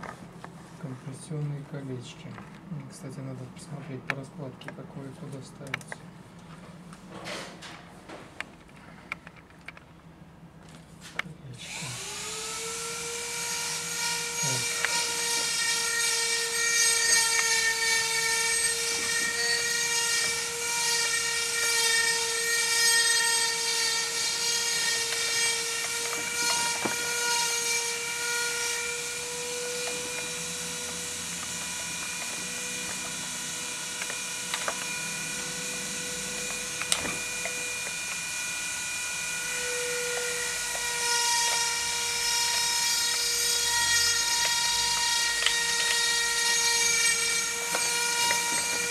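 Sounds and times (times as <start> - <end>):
electric motor whining: 11.6 - 48.9.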